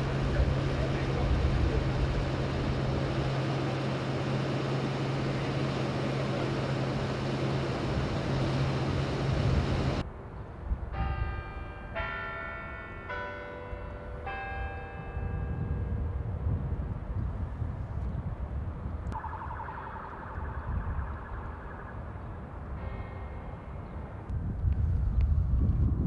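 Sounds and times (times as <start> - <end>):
bus engine idling: 0.0 - 10.0
street noise: 0.0 - 25.1
quiet traffic: 0.0 - 25.4
bells ringing: 10.9 - 16.1, 22.7 - 24.2.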